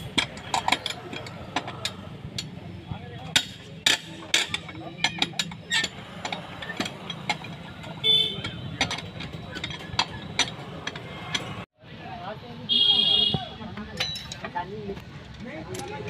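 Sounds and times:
wheel brace clinking on wheel nuts: 0.0 - 11.7.

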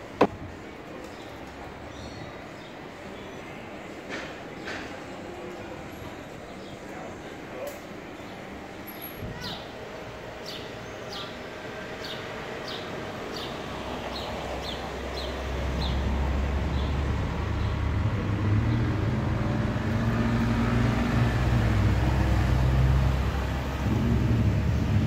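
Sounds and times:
vehicle engine running: 15.7 - 25.0.

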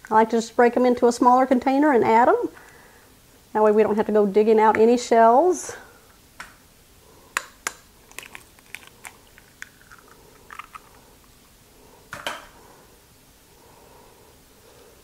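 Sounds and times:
eggshell crackling: 7.4 - 11.9.

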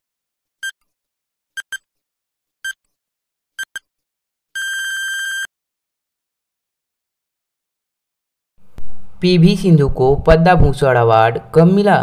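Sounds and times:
short electronic beeps: 1.6 - 1.9, 3.6 - 3.9, 4.6 - 5.5
long steady beep: 4.6 - 5.5.

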